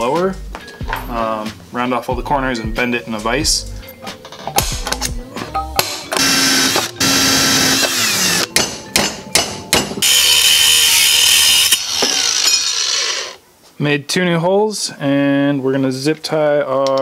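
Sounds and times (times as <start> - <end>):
angle grinder grinding metal: 6.2 - 8.5, 10.0 - 13.4
power tool motor running: 6.2 - 8.5, 10.0 - 13.4
sharp metal knocks: 8.4 - 10.0.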